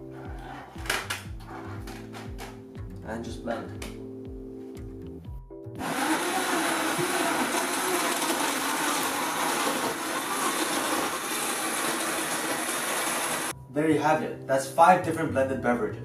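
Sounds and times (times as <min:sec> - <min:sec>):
blender crushing ice: 0:05.8 - 0:13.5.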